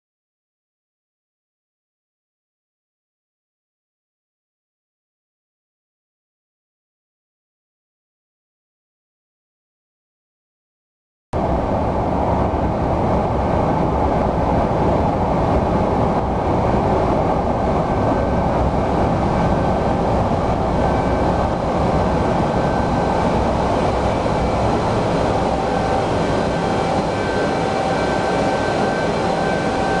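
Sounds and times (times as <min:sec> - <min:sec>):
faint steady whine: 0:11.4 - 0:30.0.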